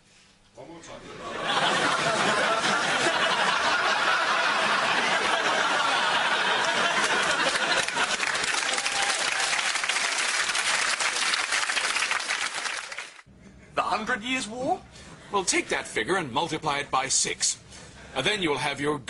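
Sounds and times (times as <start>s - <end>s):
audience laughing: 1.0s - 9.1s
audience clapping: 4.1s - 13.3s.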